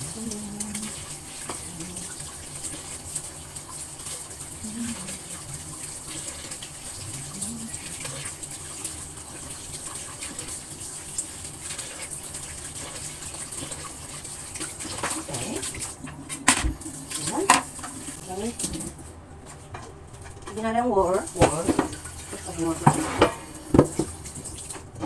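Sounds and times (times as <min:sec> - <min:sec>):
tap water splashing in sink: 0:00.2 - 0:19.0, 0:19.7 - 0:25.0.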